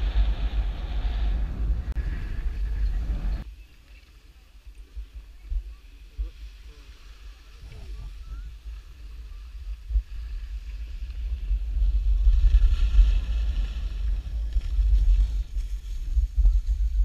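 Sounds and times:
wind buffeting microphone: 0:00.0 - 0:03.5, 0:04.8 - 0:17.0
skis sliding over snow: 0:05.8 - 0:17.0.

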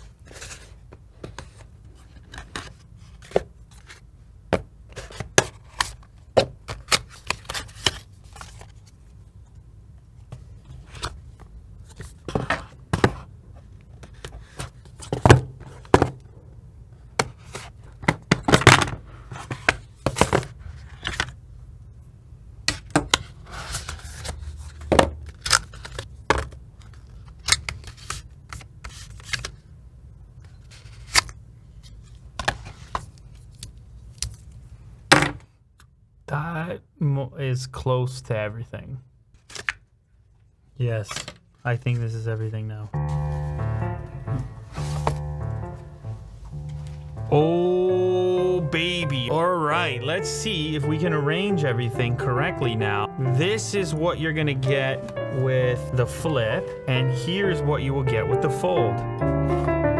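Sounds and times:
low steady hum: 0:41.7 - 0:57.4.

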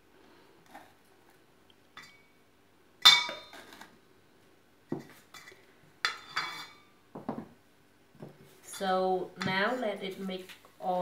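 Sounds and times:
metal bowl clinking: 0:03.0 - 0:03.6.

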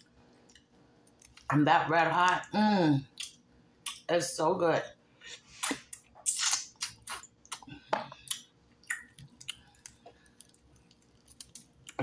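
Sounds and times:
crunchy chewing: 0:05.6 - 0:12.0.

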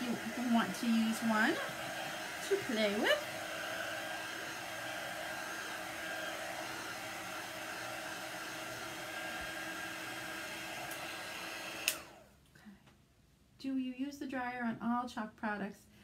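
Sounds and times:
handheld dryer whining: 0:00.0 - 0:12.3.

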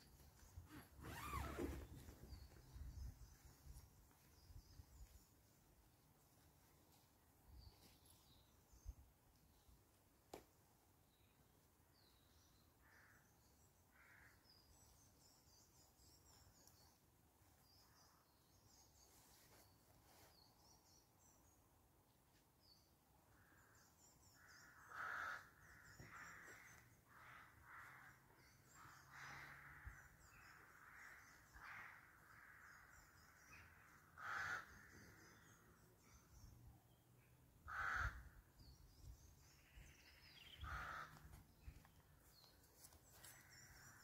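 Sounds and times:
small birds twittering: 0:22.7 - 0:44.0
bird calls: 0:37.6 - 0:44.0.

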